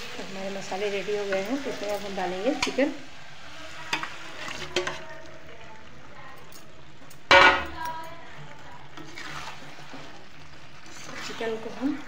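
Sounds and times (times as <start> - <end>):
utensils clinking against a pan: 0.6 - 3.0, 3.8 - 12.0
loud metal clang: 7.3 - 7.7.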